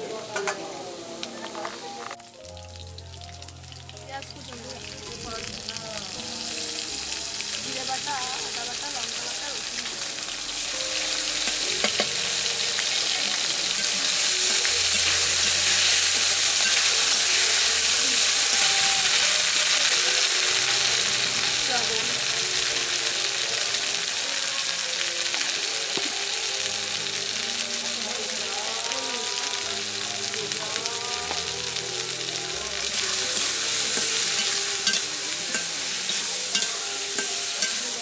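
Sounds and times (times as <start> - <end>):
vegetables sizzling in hot oil: 0.0 - 38.0
steel spatula scraping pan: 12.8 - 18.7, 33.3 - 38.0.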